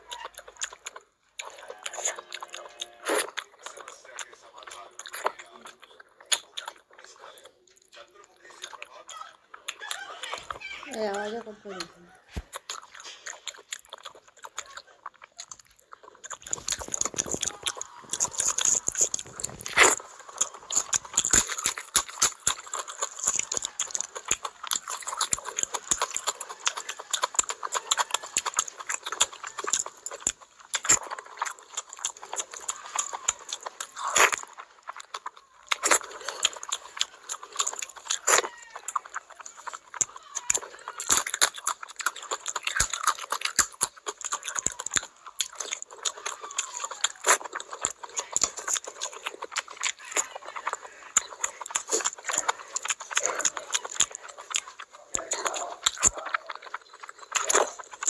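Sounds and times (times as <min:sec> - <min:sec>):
mouth clicks: 0:00.0 - 0:58.0
wet chewing and lip smacking: 0:00.0 - 0:58.0.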